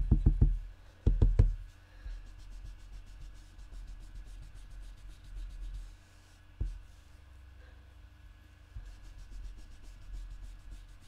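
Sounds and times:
knock on table: 0.1s - 1.6s
brush scratching on cardstock: 2.2s - 7.2s, 8.8s - 11.0s.

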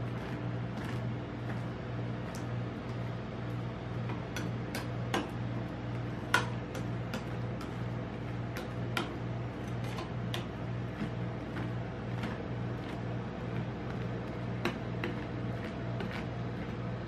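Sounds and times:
steady low hum: 0.0s - 17.0s
metal spatulas tapping and scraping: 6.2s - 7.9s.

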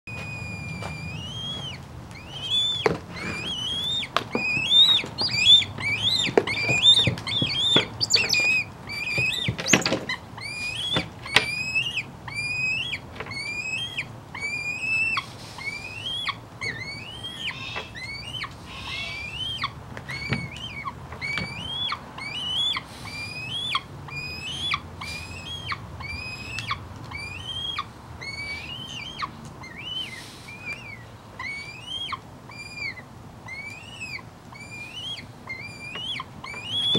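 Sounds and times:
young hawk begging calls: 0.1s - 36.9s.

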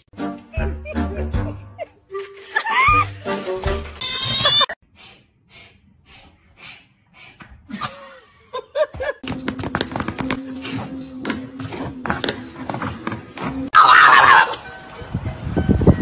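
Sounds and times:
man laughing: 0.5s - 2.0s, 7.7s - 9.3s.

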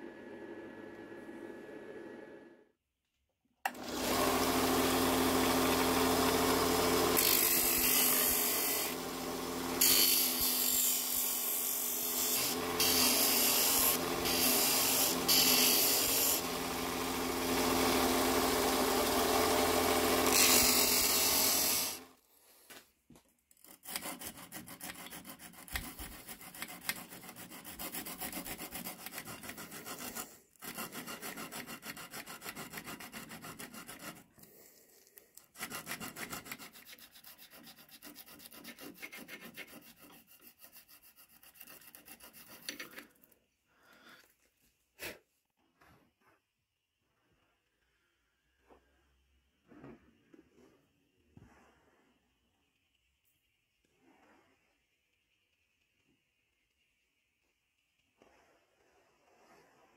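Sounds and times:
bench grinder motor hum: 3.7s - 22.1s
sandpaper rubbing on metal: 23.8s - 34.3s, 35.5s - 43.0s.

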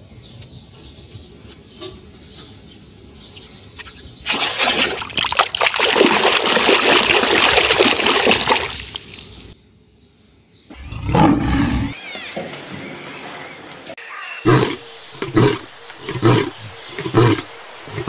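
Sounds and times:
water splashing in a tub: 4.2s - 9.6s.

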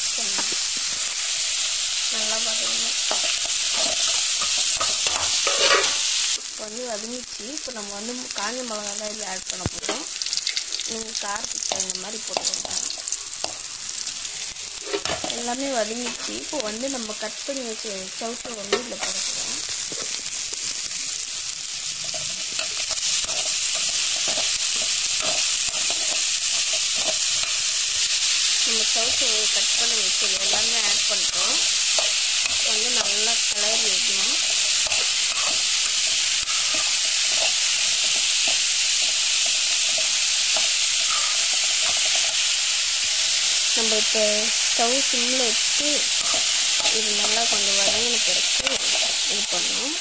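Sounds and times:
vegetables sizzling in oil: 0.0s - 50.0s
metal spatula scraping pan: 3.1s - 6.1s, 31.3s - 38.6s.

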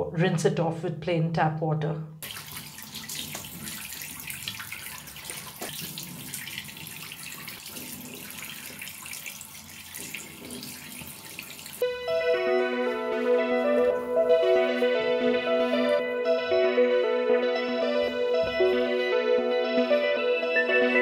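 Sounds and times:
tap water running into basin: 2.2s - 11.9s
piano music: 11.8s - 21.0s.

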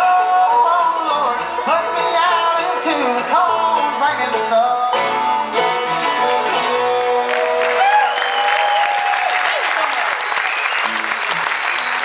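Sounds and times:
live bluegrass band playing: 0.0s - 8.8s, 9.7s - 12.0s
audience applause: 6.8s - 12.0s.

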